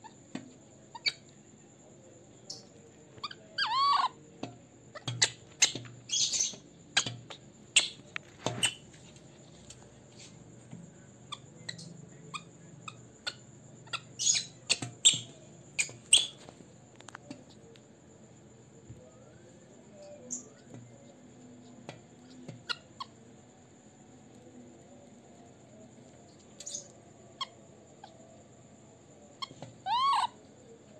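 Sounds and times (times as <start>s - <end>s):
baby monkey squeaking: 0.9s - 1.3s, 2.5s - 4.2s, 4.9s - 8.9s, 11.3s - 16.5s, 22.2s - 23.2s, 29.4s - 30.4s.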